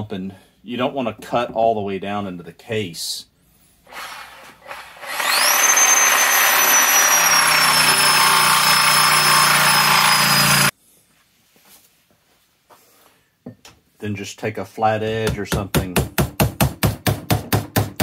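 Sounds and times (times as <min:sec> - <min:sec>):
reciprocating saw cutting metal: 0:03.9 - 0:10.7.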